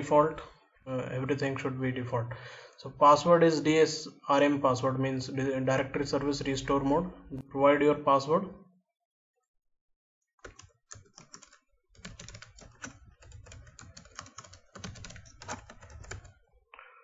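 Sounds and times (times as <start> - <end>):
computer keyboard keystrokes: 10.4 - 16.4.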